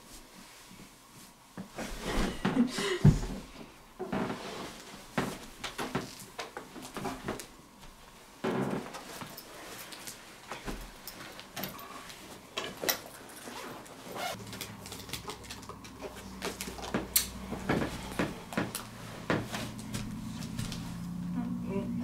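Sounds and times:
fabric backpack rustling: 13.3s - 14.4s.

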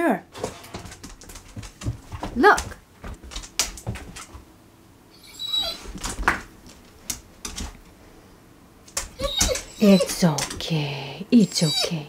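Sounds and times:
claws clicking on tile floor: 0.7s - 4.4s, 5.9s - 7.9s
dog whining: 5.1s - 6.0s, 9.0s - 10.5s, 11.4s - 12.0s.

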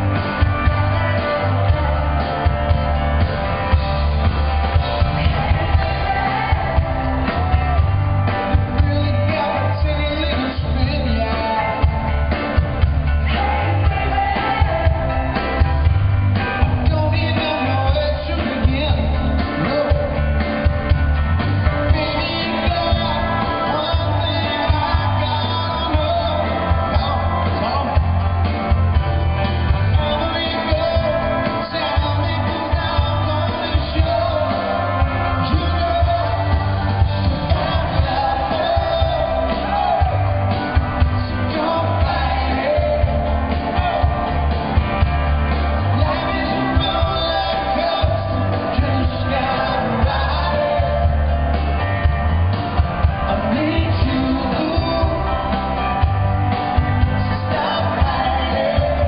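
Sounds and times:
man singing into a microphone: 0.0s - 2.9s, 8.4s - 12.4s, 16.5s - 20.6s, 21.6s - 28.4s, 29.6s - 44.6s, 45.5s - 51.6s, 53.1s - 59.0s
live pop band: 0.0s - 59.0s
steady drum beat: 0.0s - 59.0s.

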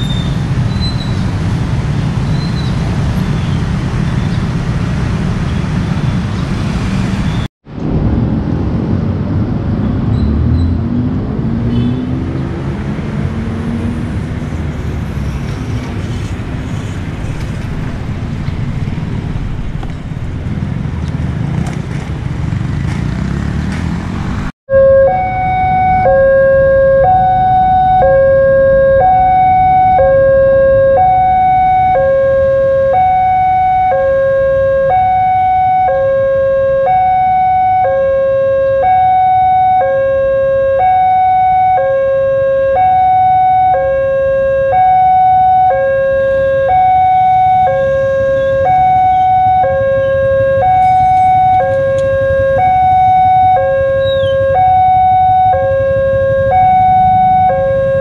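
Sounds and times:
road traffic: 0.0s - 58.0s
level crossing alarm two tones: 24.7s - 58.0s.

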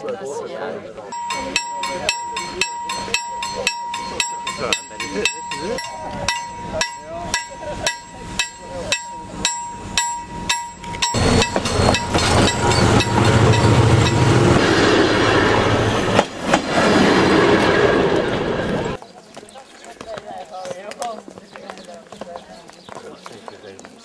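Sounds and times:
steady high tone: 1.1s - 16.1s
passing train rattle: 1.1s - 19.0s
sharp ticking: 1.2s - 14.6s
locomotive engine low rumble: 1.2s - 19.0s.

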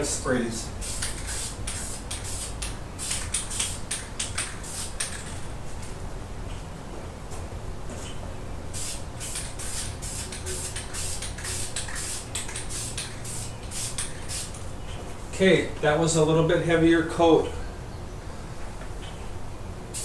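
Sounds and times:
aerosol can spraying: 0.8s - 5.2s, 8.8s - 14.6s.

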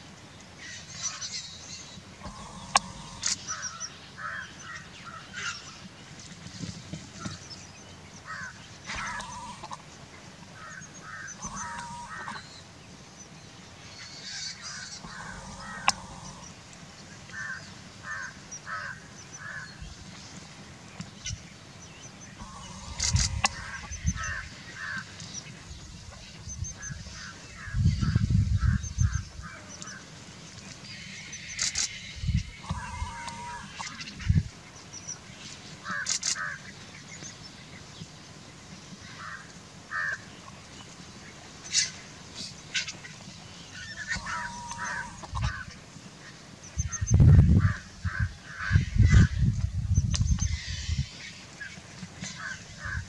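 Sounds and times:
vultures cackling calls: 2.2s - 5.5s, 8.2s - 12.6s, 14.0s - 19.8s, 22.3s - 30.1s, 30.9s - 34.5s, 41.7s - 46.2s, 46.8s - 49.4s, 50.4s - 53.0s.

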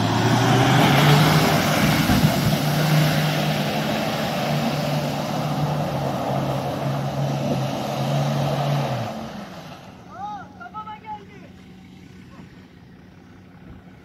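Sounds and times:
water and mud splashing: 0.0s - 10.0s
truck engine at high revs: 0.0s - 10.1s.

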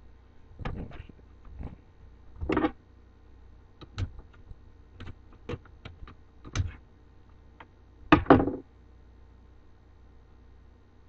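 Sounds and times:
hard drive parts clicking: 3.8s - 6.8s
knocks: 8.1s - 8.6s.

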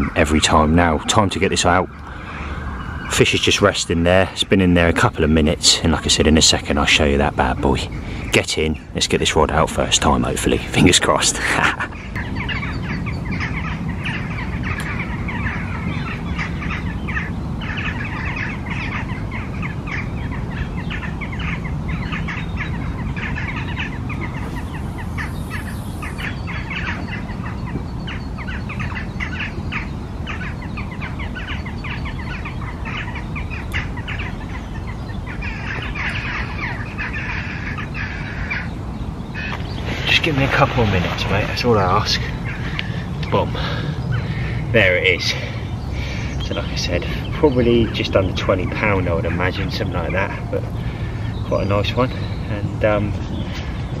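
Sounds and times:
steady low rumble: 0.0s - 9.0s, 9.7s - 28.8s, 38.1s - 51.5s
songbirds chirping and singing: 0.0s - 54.0s.

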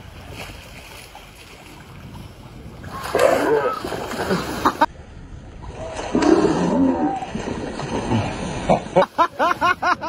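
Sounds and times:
seals barking and growling: 2.9s - 4.9s.

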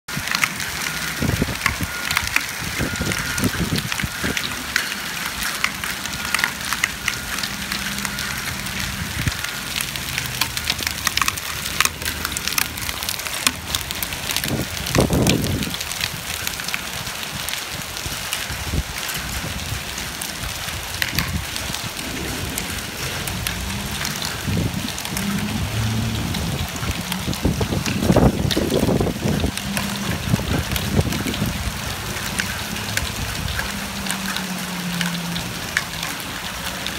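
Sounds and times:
hailstones ticking on pavement: 0.1s - 36.9s
heavy rain hissing: 0.1s - 36.9s
low rumble: 21.2s - 34.3s.

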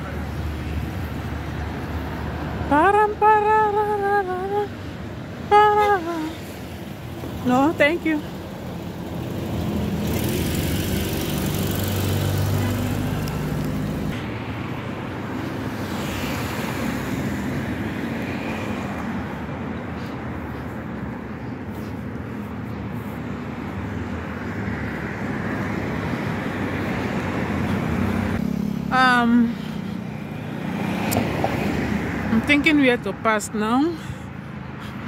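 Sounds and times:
passing cars: 0.0s - 35.0s
vehicle engine humming: 0.0s - 35.0s.

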